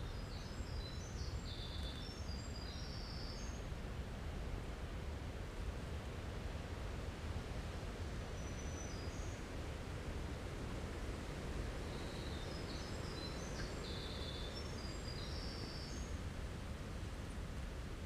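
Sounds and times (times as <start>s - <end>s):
songbird singing: 0.0s - 3.7s, 8.4s - 9.5s, 11.8s - 16.2s.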